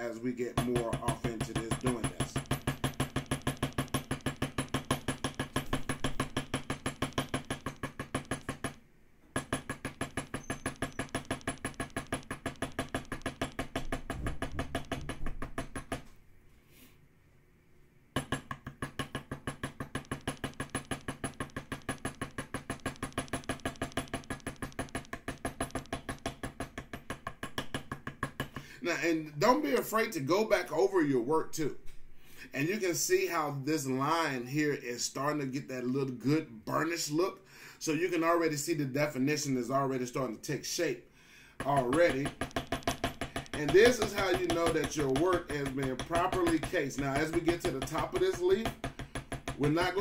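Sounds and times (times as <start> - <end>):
mallet tapping leather tool: 0.5 - 16.1, 18.2 - 28.7, 41.6 - 50.0.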